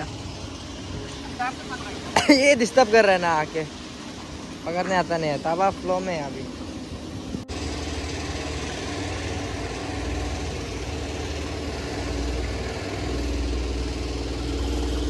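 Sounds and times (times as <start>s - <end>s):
fast-flowing river water: 0.0s - 15.0s
wind on the microphone: 6.5s - 7.5s.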